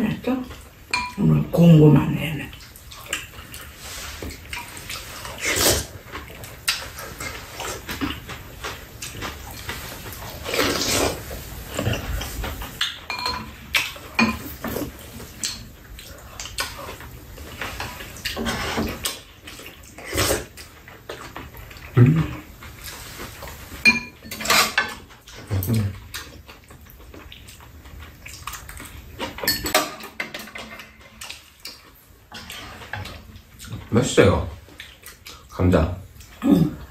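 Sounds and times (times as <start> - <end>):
utensils clinking against bowls: 0.9 - 1.7, 12.8 - 15.7, 23.8 - 25.9, 29.2 - 31.4.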